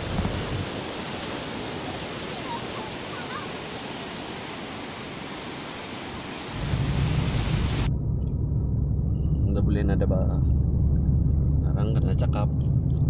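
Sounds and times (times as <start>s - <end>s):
waves breaking: 0.0s - 7.9s.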